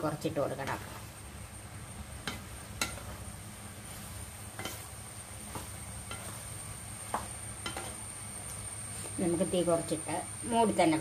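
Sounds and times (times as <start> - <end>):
spatula knocking and scraping pan: 2.2 - 3.2, 4.0 - 8.1.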